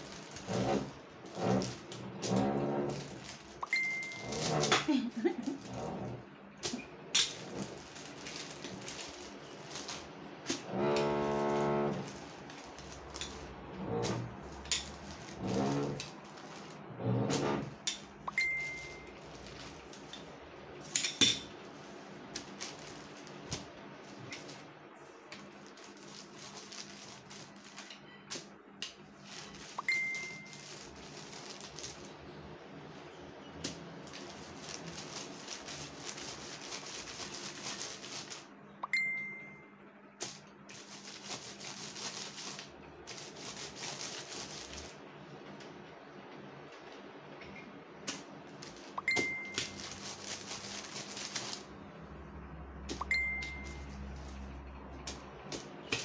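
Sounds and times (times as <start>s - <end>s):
food preparation rustling: 0.0s - 38.6s, 40.2s - 45.0s, 48.0s - 56.0s
tableware clinking: 20.9s - 21.5s.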